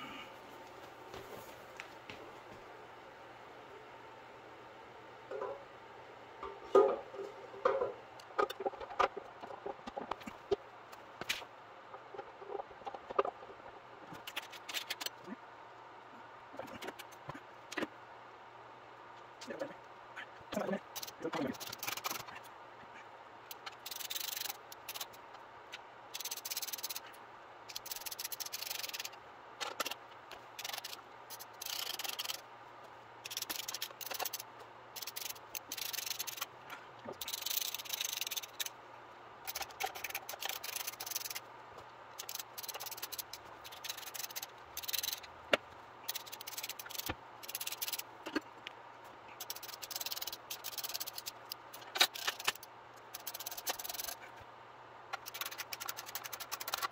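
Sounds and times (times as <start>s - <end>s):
hand ratchet clicking: 21.0s - 22.3s, 23.5s - 25.2s, 26.1s - 27.0s, 27.7s - 29.2s, 30.6s - 32.4s, 33.2s - 34.4s, 35.0s - 36.5s, 37.2s - 38.7s, 39.5s - 41.4s, 42.2s - 45.3s, 46.1s - 48.0s, 49.4s - 54.2s, 55.2s - 56.9s.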